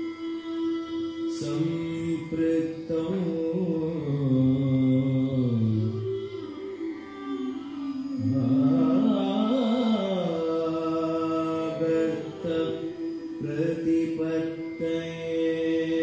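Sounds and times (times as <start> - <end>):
faint steady drone: 0.0 - 16.0
person singing a chant: 0.0 - 16.0.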